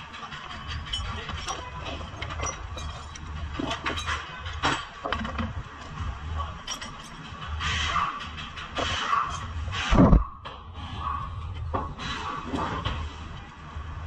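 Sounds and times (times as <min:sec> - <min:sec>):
metal tools clinking and knocking: 0:00.0 - 0:07.5.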